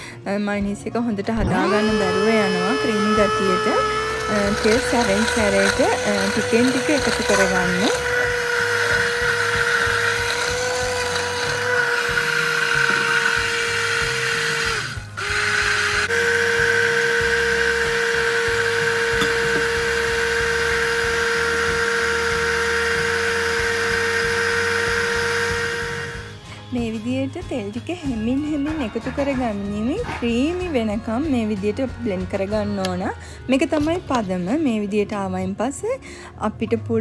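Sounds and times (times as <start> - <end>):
immersion blender running: 1.4 - 27.5.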